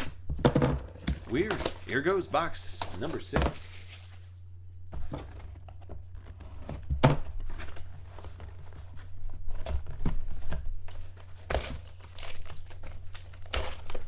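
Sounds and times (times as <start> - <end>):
foil packs rustling: 1.1 - 4.3, 7.3 - 14.0.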